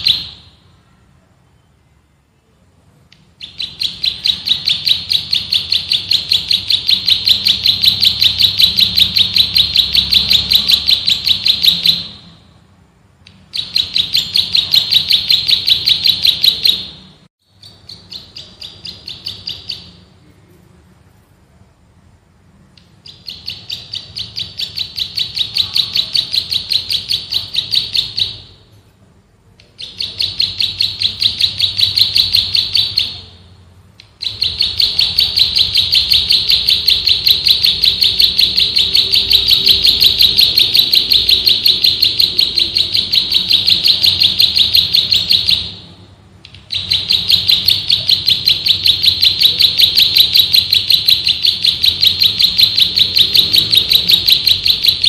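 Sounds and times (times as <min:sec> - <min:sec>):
bird singing fast drilling song: 0:03.4 - 0:12.0, 0:17.5 - 0:20.0.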